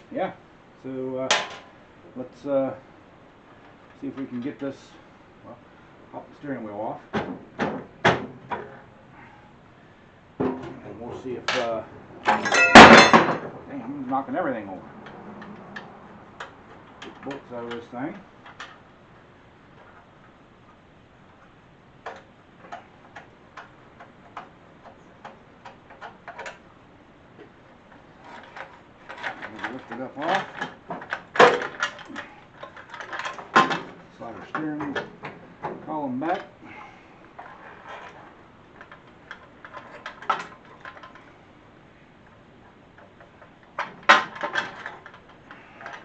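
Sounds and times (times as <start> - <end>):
metal clunks and scrapes: 10.4 - 10.8.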